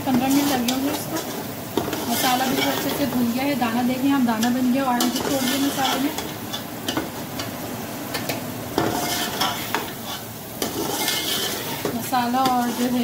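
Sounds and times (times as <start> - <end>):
spice paste sizzling in oil: 0.0 - 13.0
metal ladle scraping pot: 4.4 - 6.3, 8.8 - 13.0.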